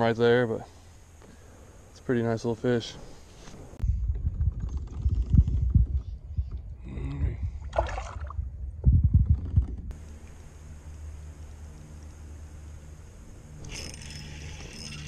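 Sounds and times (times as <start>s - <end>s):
low bumps and rumbles: 3.8s - 10.0s.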